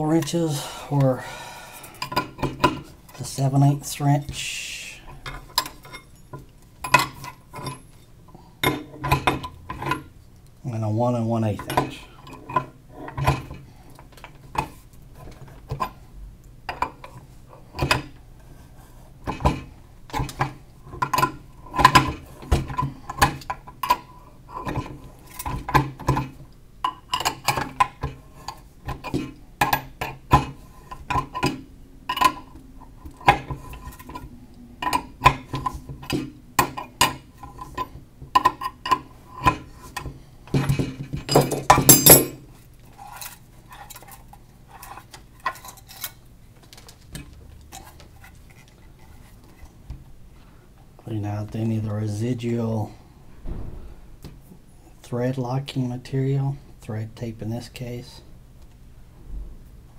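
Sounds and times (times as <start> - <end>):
wrenches clinking on metal: 40.6 - 42.4
metal rattle: 53.2 - 54.8.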